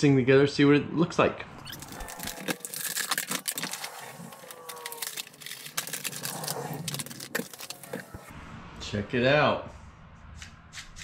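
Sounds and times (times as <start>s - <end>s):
plastic packaging crackling: 1.6s - 8.3s.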